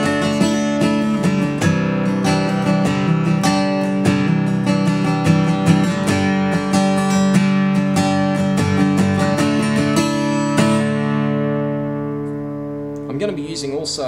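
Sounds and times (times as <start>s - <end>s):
acoustic guitar strumming: 0.0s - 14.0s.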